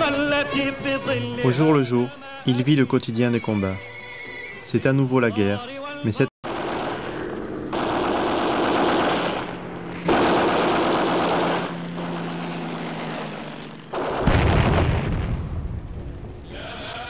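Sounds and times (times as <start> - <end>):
rapid machine-gun fire: 6.5 - 15.2
deep explosion boom: 14.0 - 17.0.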